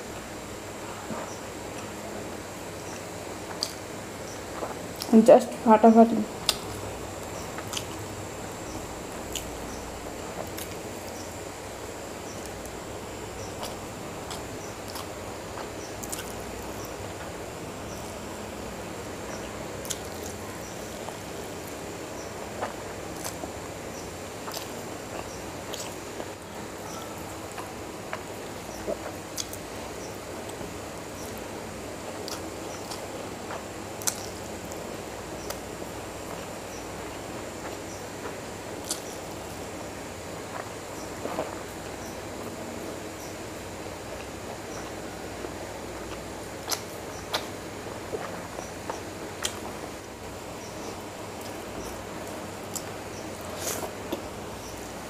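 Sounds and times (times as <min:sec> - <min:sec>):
steady hiss: 0:00.0 - 0:55.0
chewing and lip-smacking: 0:06.4 - 0:08.0, 0:13.4 - 0:17.4, 0:19.3 - 0:21.8, 0:22.6 - 0:31.5, 0:32.1 - 0:34.8, 0:35.4 - 0:39.4, 0:46.0 - 0:49.8.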